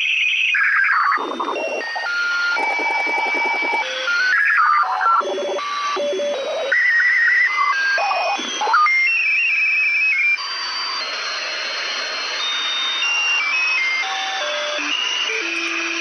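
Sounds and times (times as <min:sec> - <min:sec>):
radio whistling tones: 0:00.6 - 0:16.0
radio static hiss: 0:00.9 - 0:05.6.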